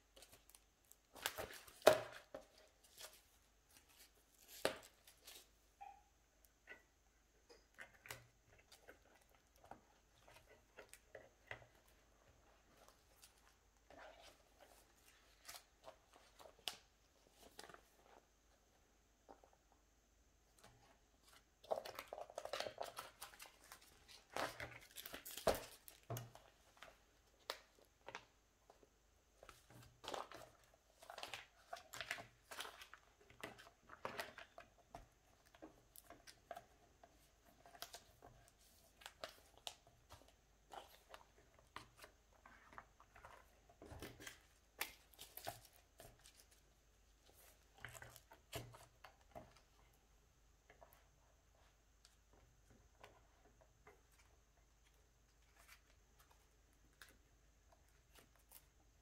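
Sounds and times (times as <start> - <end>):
plastic sleeves crinkling: 20.6 - 28.8.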